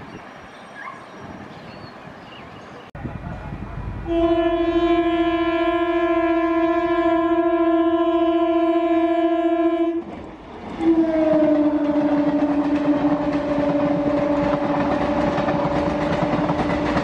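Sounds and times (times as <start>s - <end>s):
train rumble: 2.8s - 17.0s
train horn blast: 4.0s - 10.1s, 10.8s - 17.0s.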